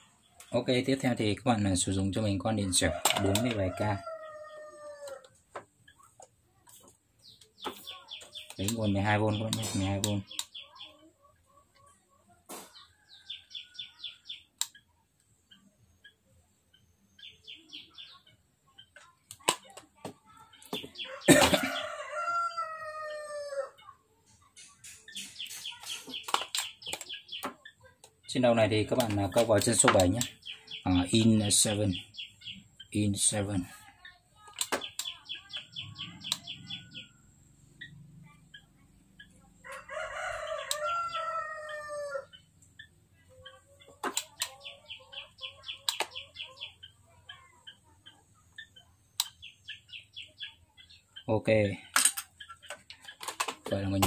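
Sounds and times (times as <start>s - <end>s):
small birds chirping: 0.0s - 54.0s
rooster crowing: 2.8s - 5.3s, 21.1s - 23.7s, 39.6s - 42.3s
sharp clicks: 14.3s - 15.3s, 24.6s - 28.1s, 34.5s - 37.0s, 45.6s - 46.2s, 48.6s - 49.5s.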